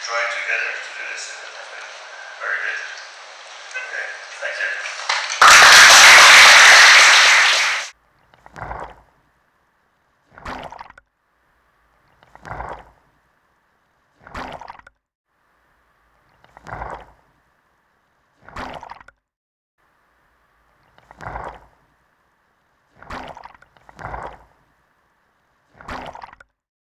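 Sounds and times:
audience applause: 0:00.0 - 0:07.9.

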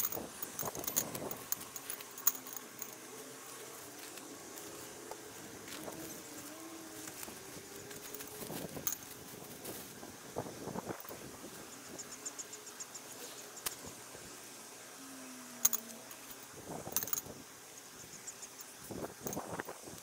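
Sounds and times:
rope rustling on grass: 0:00.0 - 0:10.5
insect chirping trill: 0:00.0 - 0:20.0.

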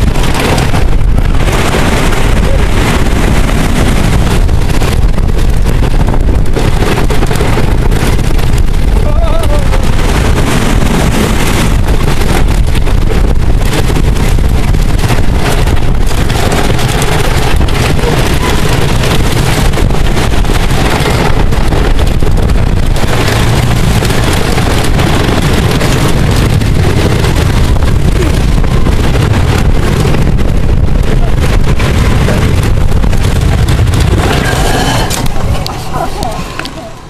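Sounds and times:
roller coaster rumble and clatter: 0:00.0 - 0:37.0
wind buffeting microphone: 0:00.0 - 0:37.0.

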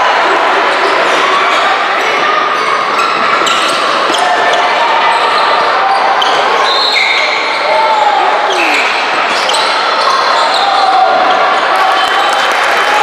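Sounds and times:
crowd chatter: 0:00.0 - 0:13.0
shoe squeaks: 0:03.0 - 0:07.7, 0:08.5 - 0:11.0.

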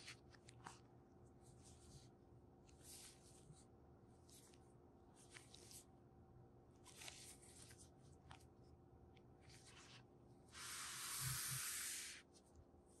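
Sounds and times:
cardboard rubbing or sliding: 0:10.5 - 0:12.2.

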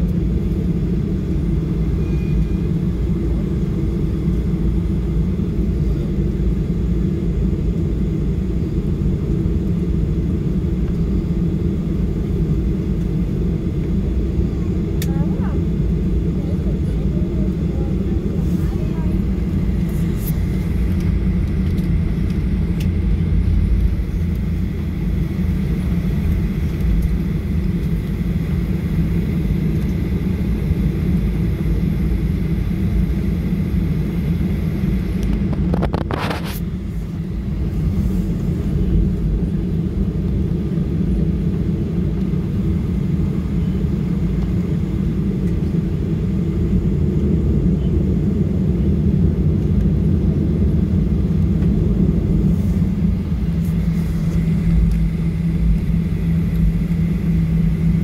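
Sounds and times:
low rumble of aircraft engines: 0:00.0 - 0:58.0
faint high whine: 0:01.6 - 0:03.8.

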